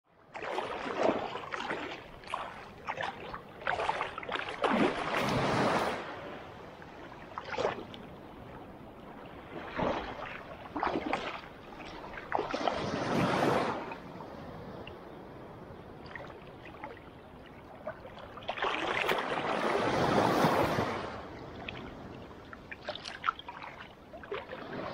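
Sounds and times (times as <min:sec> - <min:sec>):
water lapping at shoreline: 0:00.1 - 0:24.9.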